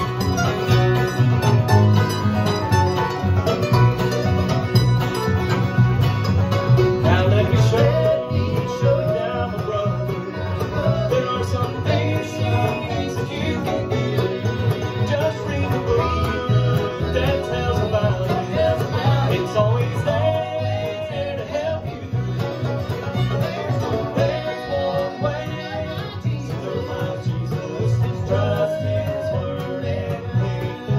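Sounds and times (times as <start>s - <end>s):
acoustic guitars: 0.0s - 30.9s
banjo: 0.0s - 30.9s
bass beat: 0.0s - 30.9s
fiddle: 0.0s - 30.9s.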